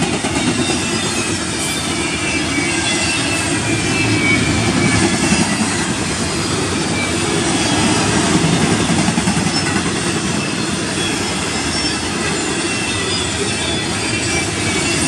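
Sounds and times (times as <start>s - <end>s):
train wheels rumbling on rails: 0.0s - 15.0s
faint wheel squeals: 9.4s - 15.0s.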